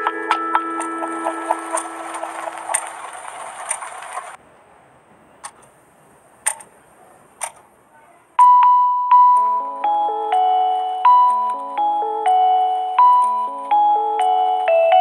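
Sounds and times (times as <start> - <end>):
bell-like mallet melody: 0.0 - 2.8, 8.4 - 15.0
crackly lo-fi beat: 0.0 - 3.3.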